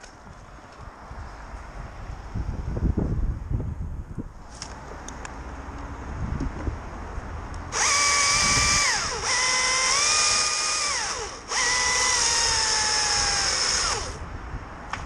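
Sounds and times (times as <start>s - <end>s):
battery chainsaw whine: 7.7s - 14.2s.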